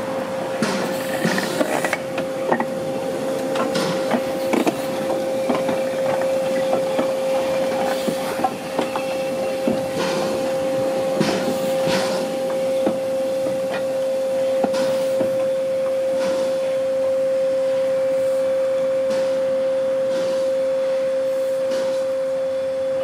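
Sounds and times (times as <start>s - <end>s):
puffs of hiss: 14.7s - 15.4s, 18.0s - 22.2s.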